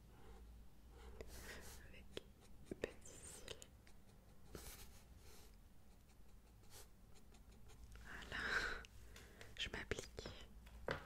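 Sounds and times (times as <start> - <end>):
pencil sketching on paper: 1.0 - 7.9.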